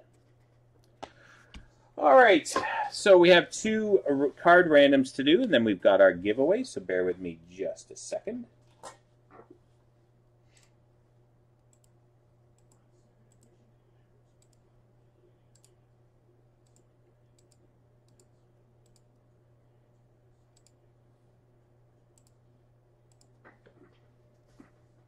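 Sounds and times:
steady low hum: 0.0 - 25.0
keyboard and mouse clicks: 23.1 - 23.8.

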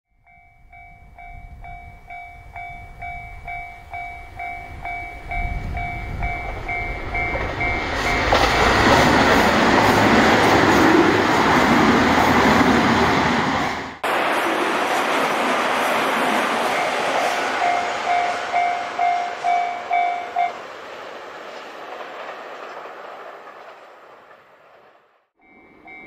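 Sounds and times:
level crossing warning bell: 0.1 - 9.3, 16.6 - 20.6, 25.4 - 26.0
diesel train passing: 0.3 - 26.0.

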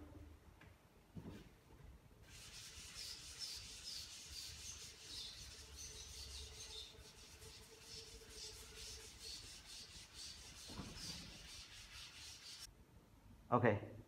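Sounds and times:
eraser rubbing on chalkboard: 2.2 - 12.7.

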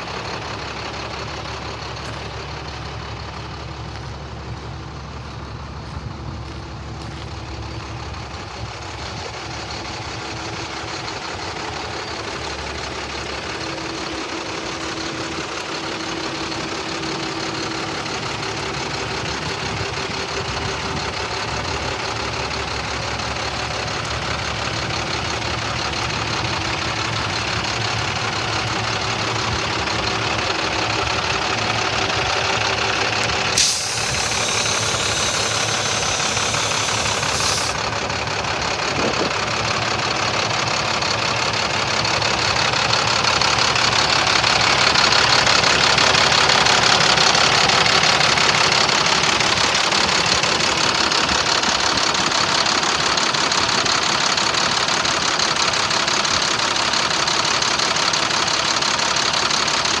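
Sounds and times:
diesel engine idling: 0.0 - 60.0
hiss: 33.5 - 37.8.

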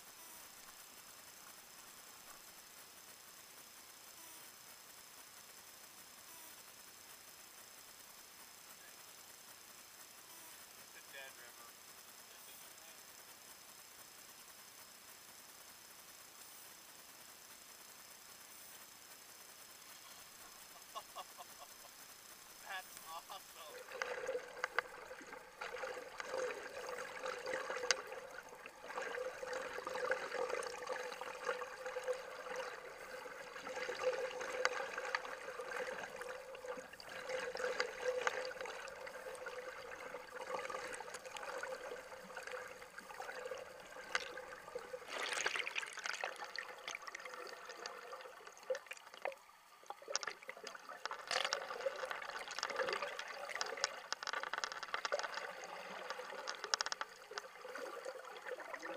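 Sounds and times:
small underwater clicks: 0.4 - 58.9
underwater river gurgling: 22.6 - 58.9.

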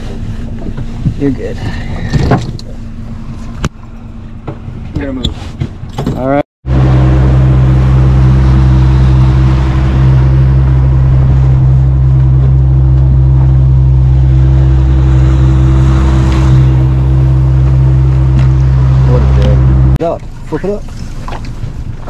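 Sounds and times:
outboard motor running: 6.6 - 22.0
water rushing along hull: 6.6 - 22.0.

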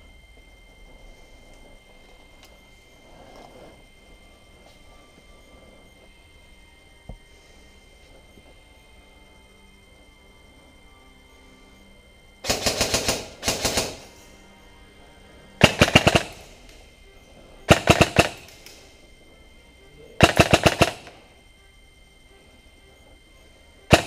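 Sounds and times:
airsoft rifle firing bursts: 12.4 - 14.2, 15.6 - 16.7, 17.7 - 18.8, 20.2 - 21.3.

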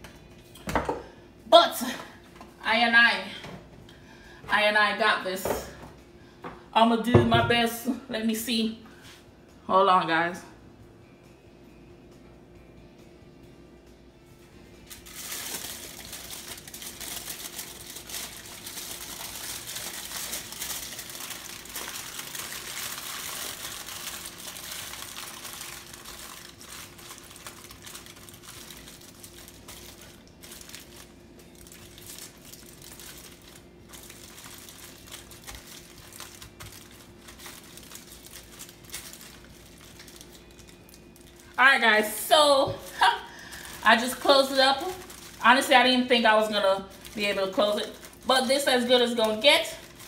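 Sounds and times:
aluminium foil crinkling: 14.8 - 50.0.

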